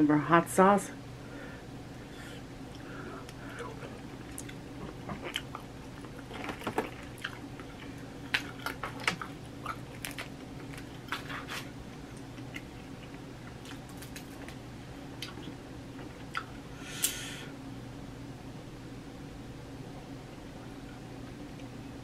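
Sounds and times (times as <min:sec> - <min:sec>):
faint low hum: 0:00.0 - 0:22.0
person chewing and smacking: 0:02.7 - 0:14.6, 0:15.2 - 0:16.6.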